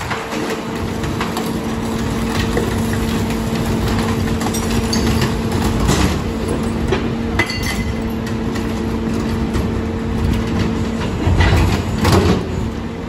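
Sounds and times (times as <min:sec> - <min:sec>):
metal cart wheeled: 0:00.0 - 0:09.5.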